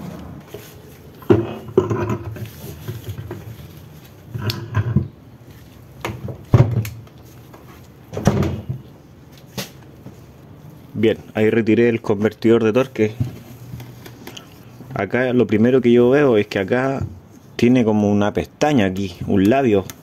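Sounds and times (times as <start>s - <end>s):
metal scrapes and knocks: 0.5s - 3.6s, 4.3s - 5.1s.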